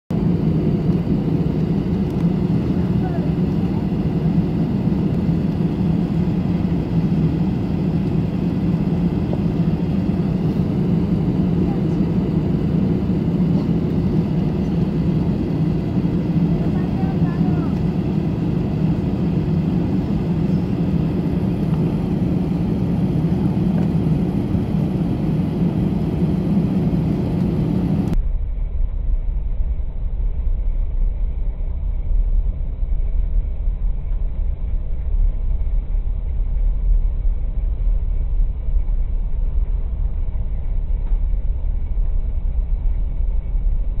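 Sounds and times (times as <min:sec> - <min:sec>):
jet engines running: 0:00.1 - 0:28.2.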